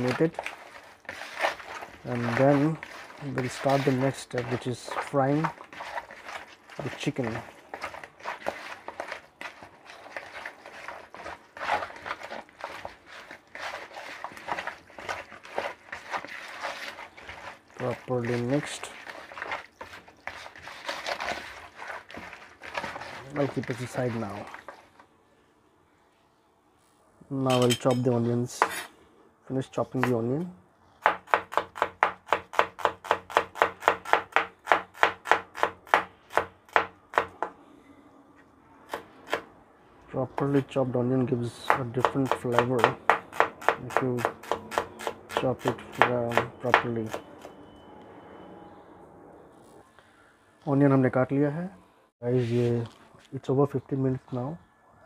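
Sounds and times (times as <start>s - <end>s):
hands mixing wet chicken: 0.0s - 25.2s, 39.5s - 47.2s.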